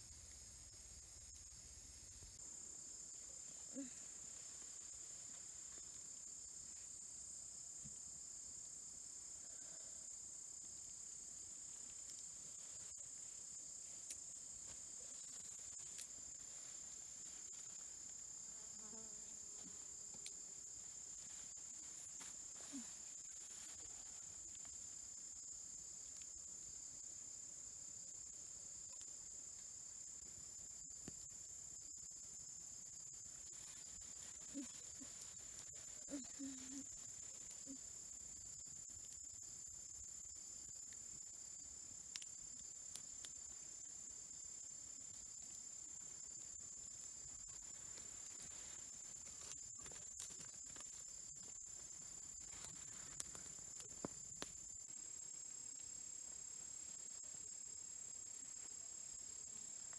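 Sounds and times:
insects trilling: 0.0s - 59.9s
faint clicks: 42.1s - 42.3s.

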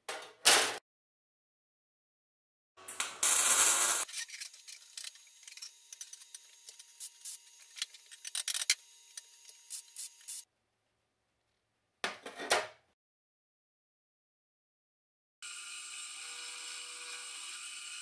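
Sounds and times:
welding arc crackling: 2.8s - 4.2s.

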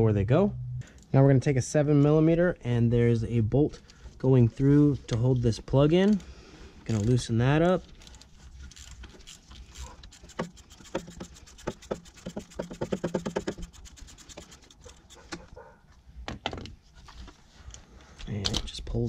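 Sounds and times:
ratchet clicking: 8.0s - 15.4s
tool knocking against metal: 10.4s - 13.7s.

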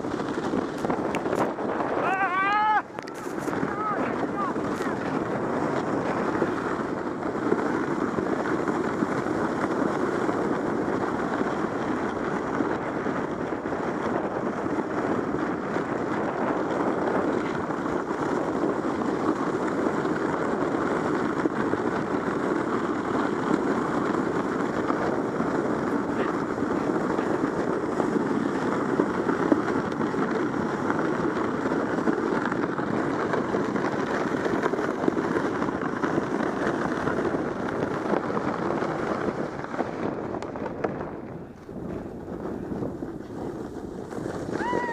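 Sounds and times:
sled scraping over snow: 0.0s - 44.9s.

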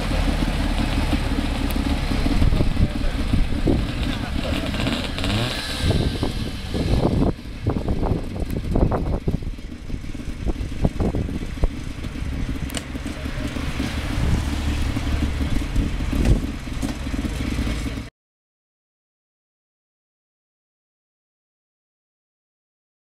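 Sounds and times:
car engine rumbling: 0.0s - 18.1s.

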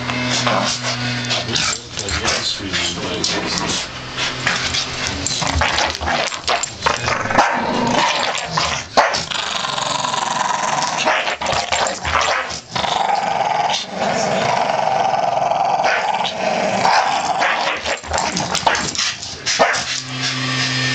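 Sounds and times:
dogs growling: 0.0s - 20.9s
dog barking: 7.4s - 7.7s, 9.0s - 9.2s, 11.0s - 11.4s, 12.2s - 12.5s, 15.8s - 16.1s, 16.9s - 18.0s, 18.7s - 19.9s.

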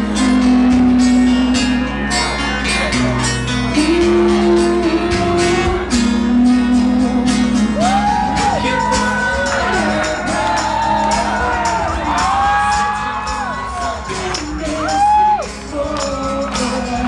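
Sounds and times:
low held bass notes: 0.0s - 16.1s
strummed acoustic guitars: 0.0s - 17.0s
people singing: 3.8s - 17.0s.

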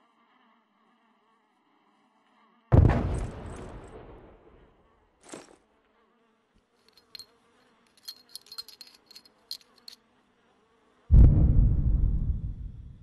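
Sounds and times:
insect buzzing: 0.0s - 2.7s, 4.4s - 11.1s
loud explosion: 2.8s - 3.5s, 11.1s - 13.0s
small high ticks: 6.6s - 10.1s.

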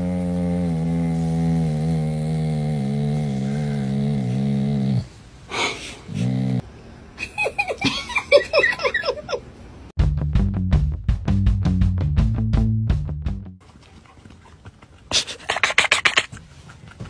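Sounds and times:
dog groaning: 0.0s - 5.1s, 6.1s - 6.6s
music: 10.0s - 13.6s.

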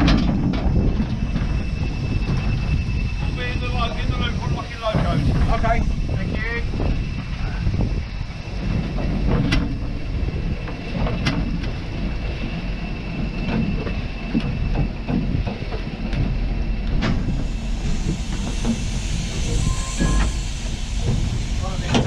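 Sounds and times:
train rumbling on track: 0.0s - 22.0s
hiss: 17.1s - 22.0s.

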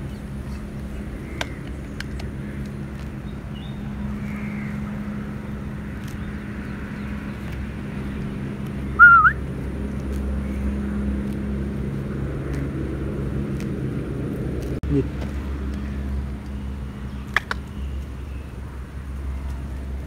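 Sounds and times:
low hum: 0.0s - 20.0s
whistled chirp: 9.0s - 9.4s.

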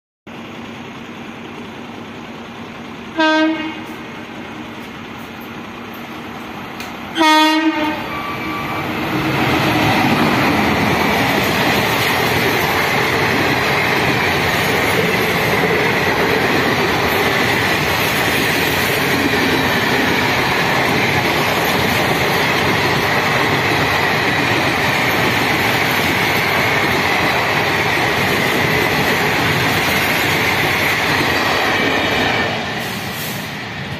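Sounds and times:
train wheels rushing on rails: 0.3s - 33.9s
locomotive horn blasts: 3.2s - 4.0s, 7.2s - 9.0s.

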